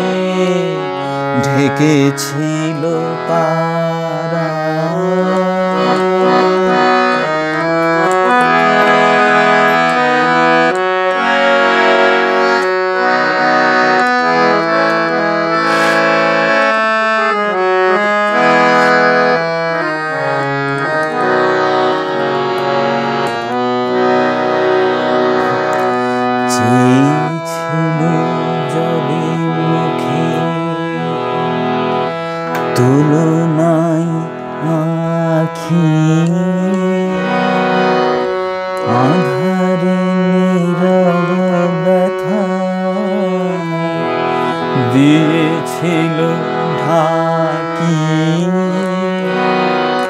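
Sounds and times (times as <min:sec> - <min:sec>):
man's voice: 0:00.0 - 0:09.8, 0:15.1 - 0:16.0, 0:25.3 - 0:31.5, 0:32.6 - 0:38.1, 0:38.7 - 0:50.0
harmonium playing: 0:00.0 - 0:50.0.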